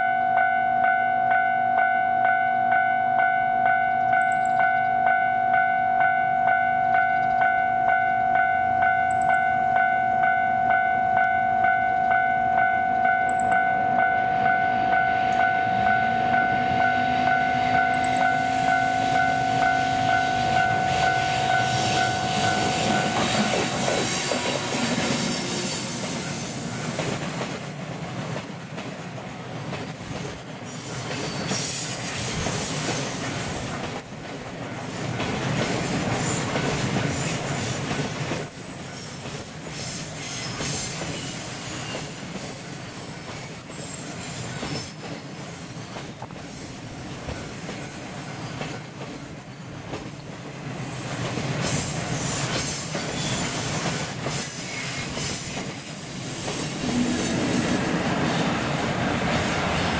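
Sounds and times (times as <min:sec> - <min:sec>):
high flange squeal: 0:14.7 - 0:26.9, 0:51.8 - 0:59.9
train wheels rumbling with clacks: 0:17.8 - 0:59.9.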